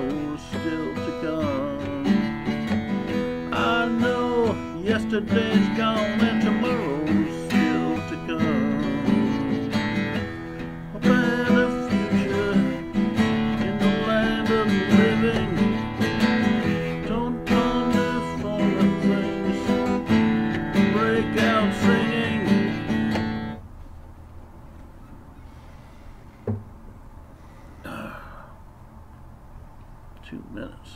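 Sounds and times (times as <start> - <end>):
man singing: 0.0 - 23.4
acoustic guitar strumming: 0.0 - 23.7
knock: 26.4 - 26.7.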